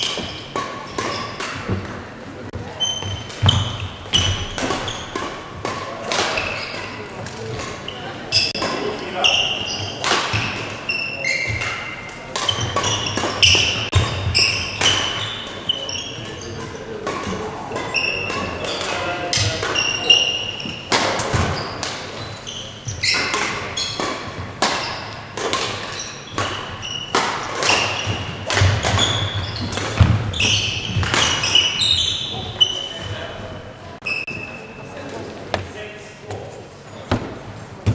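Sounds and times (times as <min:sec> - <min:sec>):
shoes squeaking: 0:00.0 - 0:37.9
rackets striking shuttlecock: 0:02.9 - 0:07.8, 0:09.8 - 0:15.6, 0:23.1 - 0:31.8.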